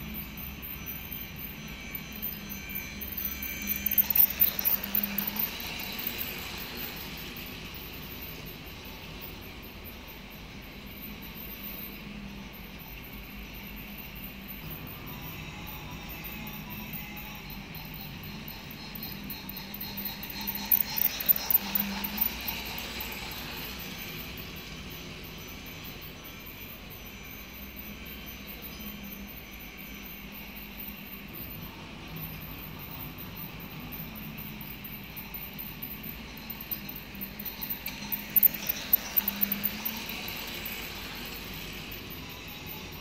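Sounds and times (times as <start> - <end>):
toy train motor humming: 0.0 - 43.0
toy train wheels clattering: 1.5 - 8.8, 16.0 - 24.8, 35.4 - 43.0.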